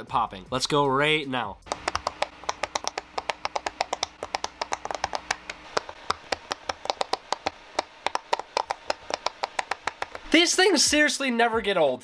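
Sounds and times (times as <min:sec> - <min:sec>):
fidget toy popping: 0:01.7 - 0:10.3.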